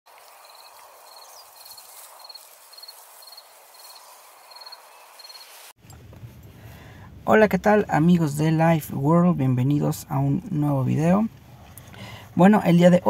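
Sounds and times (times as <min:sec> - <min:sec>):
cricket chirping: 0:00.1 - 0:05.7
steady outdoor hiss: 0:00.1 - 0:13.0.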